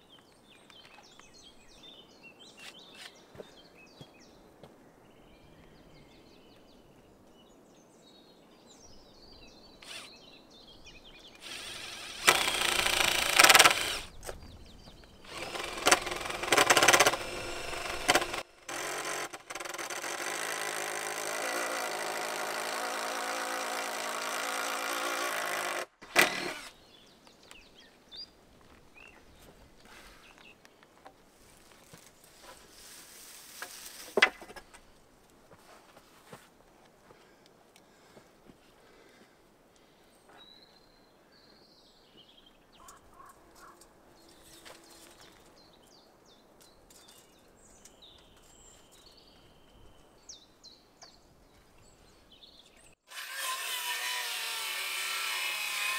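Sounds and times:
motorised tool running: 11.4 - 14.1, 15.3 - 26.7.

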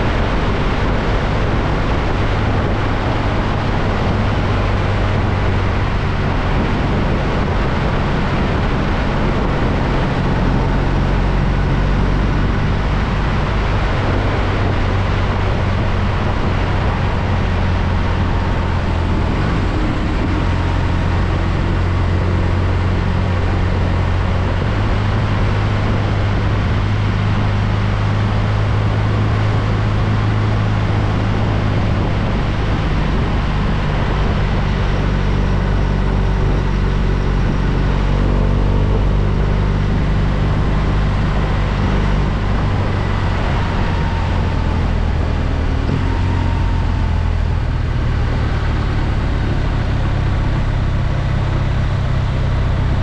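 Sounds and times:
motorcycle engine running: 0.0 - 53.0
wind noise: 0.0 - 53.0.

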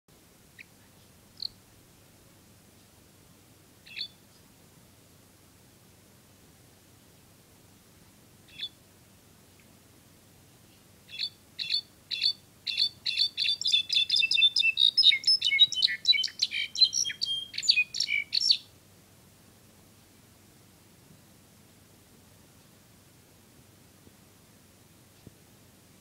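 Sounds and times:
bird chirping and twittering: 1.4 - 1.6, 3.8 - 4.2, 8.5 - 8.8, 11.1 - 18.7.

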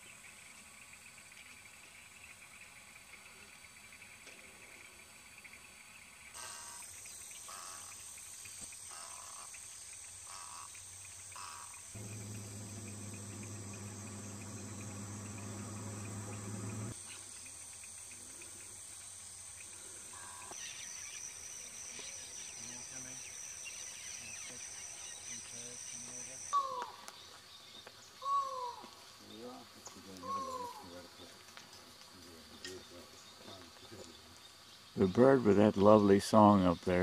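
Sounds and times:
insects trilling: 0.0 - 37.0
low steady hum: 12.0 - 17.0.

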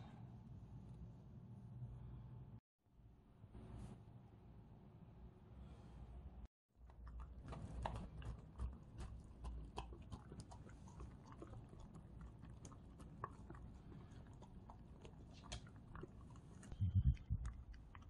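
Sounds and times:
dogs chewing food: 6.8 - 18.0.

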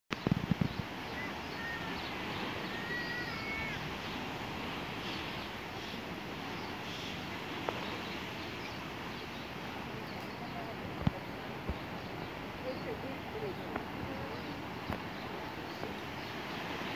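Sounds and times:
high gliding calls: 1.1 - 4.3.

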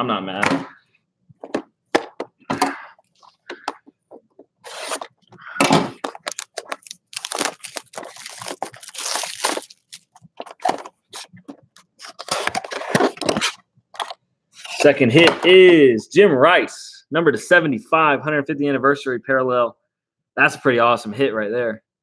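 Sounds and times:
cardboard box being handled: 6.0 - 11.3
plastic shrink wrap crinkling: 6.0 - 12.9.

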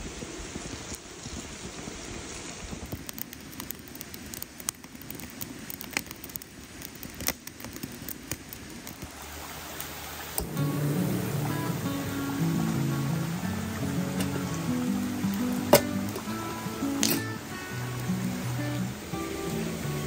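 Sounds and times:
campfire crackling and popping: 0.0 - 20.0
flames hissing: 0.0 - 20.0
music: 10.4 - 20.0.

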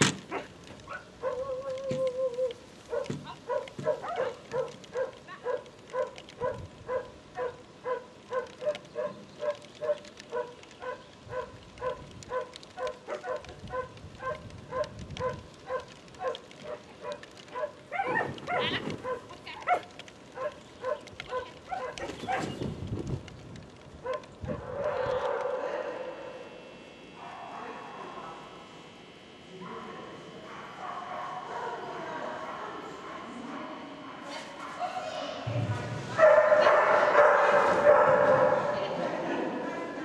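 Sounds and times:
dog barking: 0.3 - 1.6, 2.9 - 22.6, 24.0 - 26.3, 27.2 - 27.8, 29.6 - 31.8, 32.4 - 35.1, 36.2 - 39.0.

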